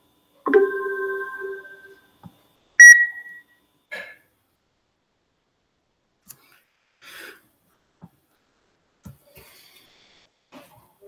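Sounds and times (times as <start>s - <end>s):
loud high electronic beep: 2.8s - 3.4s.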